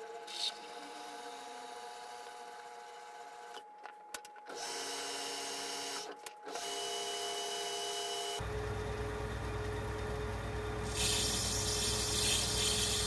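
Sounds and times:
metal lathe running: 0:10.8 - 0:13.0.

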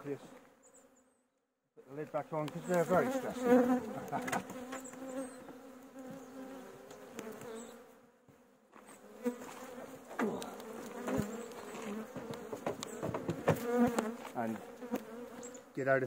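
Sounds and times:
honeybees buzzing: 0:01.8 - 0:16.0.

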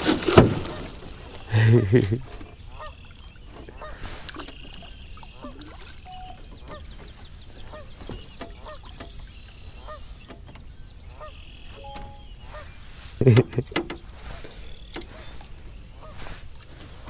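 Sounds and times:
geese honking: 0:07.6 - 0:08.0, 0:09.7 - 0:10.2, 0:11.1 - 0:12.8.

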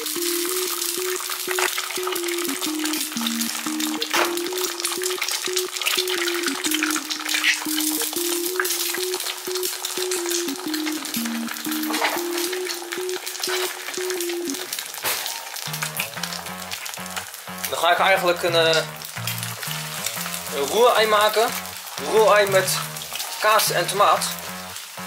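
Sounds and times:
simple low melody: 0:00.0 - 0:14.7, 0:15.7 - 0:25.0
eggs sizzling in frying pan: 0:00.0 - 0:18.0, 0:18.9 - 0:23.7, 0:24.3 - 0:25.0.

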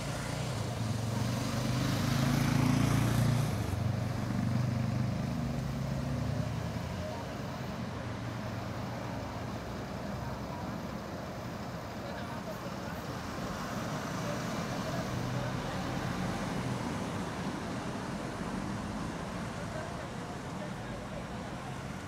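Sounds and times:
street traffic: 0:00.0 - 0:22.0.

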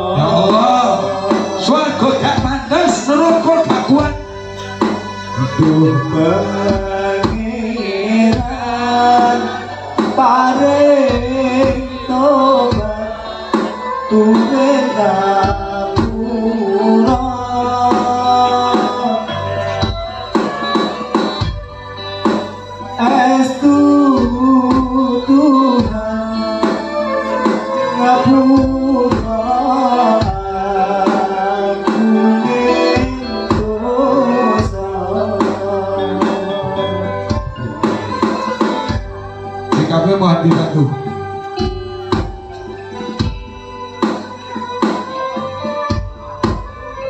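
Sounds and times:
metal gamelan percussion: 0:00.0 - 0:47.0
person singing: 0:00.0 - 0:47.0
hand drums: 0:17.1 - 0:23.0, 0:32.7 - 0:40.8, 0:41.4 - 0:47.0.

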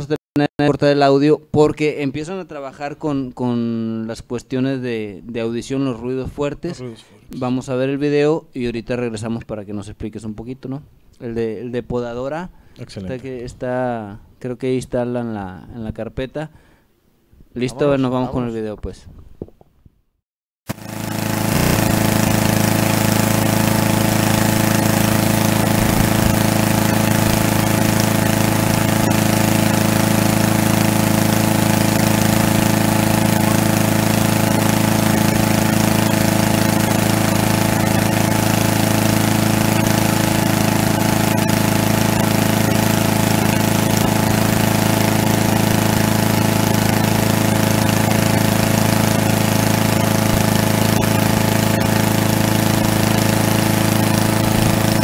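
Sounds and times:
lawn mower engine running: 0:20.7 - 0:55.0.

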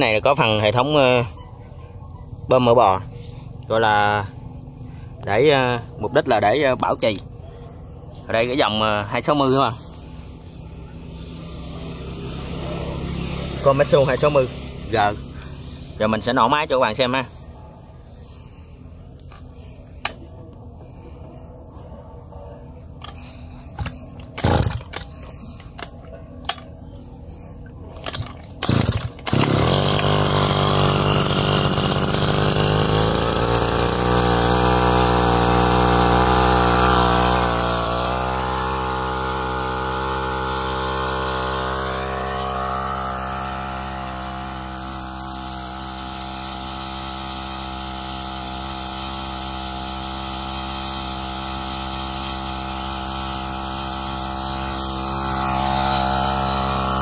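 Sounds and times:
two-stroke engine running: 0:00.0 - 0:57.0
pull-start sharp sounds: 0:22.9 - 0:26.8, 0:27.7 - 0:57.0.

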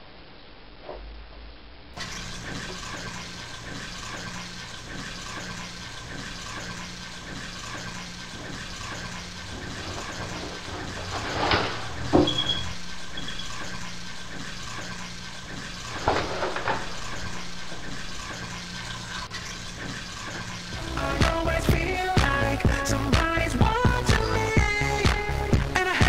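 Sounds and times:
water running: 0:02.0 - 0:26.0
music with a beat: 0:20.8 - 0:26.0.

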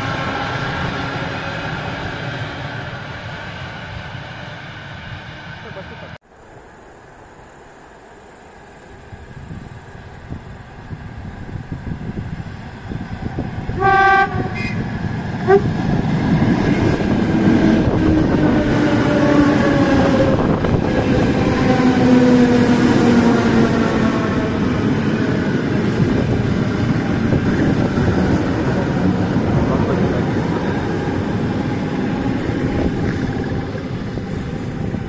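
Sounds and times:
train rumbling past with whine: 0:00.0 - 0:35.0
train horn blast: 0:13.7 - 0:15.8.

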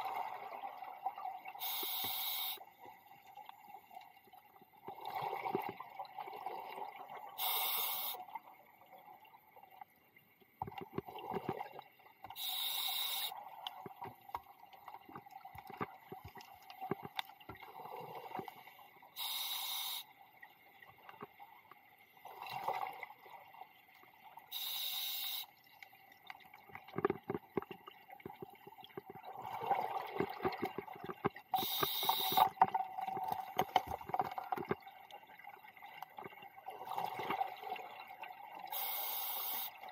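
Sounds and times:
scuba regulator hissing: 0:12.4 - 0:13.3
bubbles gurgling underwater: 0:26.9 - 0:31.6.

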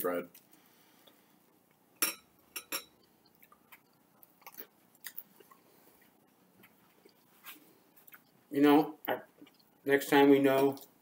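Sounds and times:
people chewing bread: 0:03.0 - 0:08.5.

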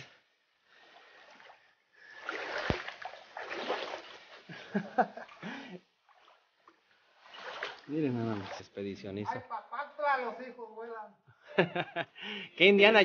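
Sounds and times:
water splashing in a stream: 0:00.0 - 0:09.0.

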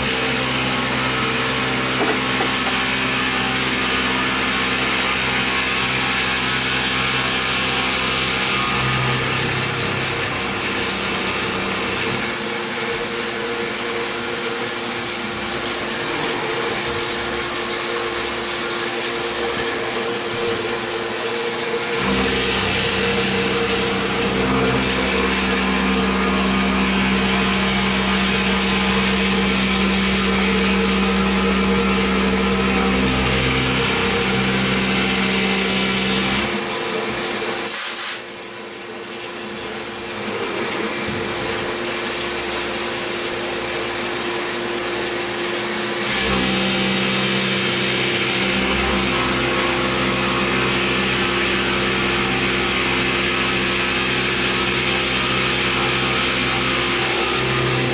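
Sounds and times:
milling machine cutting metal: 0:00.0 - 0:57.9.

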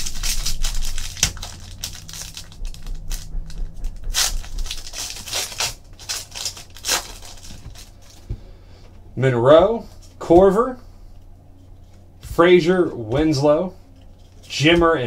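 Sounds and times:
foil wrapper tearing and crinkling: 0:00.0 - 0:08.2.

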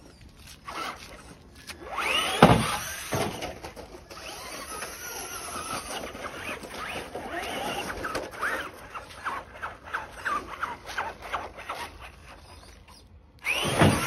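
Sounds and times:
rc truck motor whining: 0:00.0 - 0:14.0
truck landing thump: 0:02.2 - 0:03.9, 0:13.6 - 0:14.0.

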